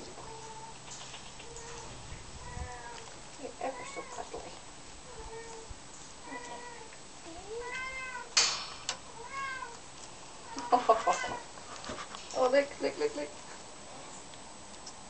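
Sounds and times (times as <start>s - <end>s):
kittens meowing: 0.0s - 8.4s, 9.1s - 9.8s, 10.4s - 11.5s.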